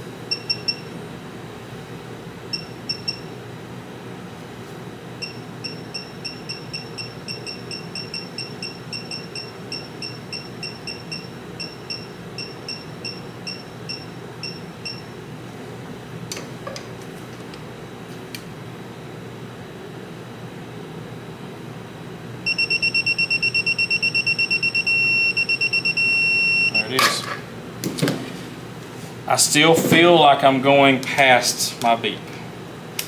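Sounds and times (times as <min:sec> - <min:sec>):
torque wrench beeping: 0:05.2 - 0:15.0, 0:22.5 - 0:27.0.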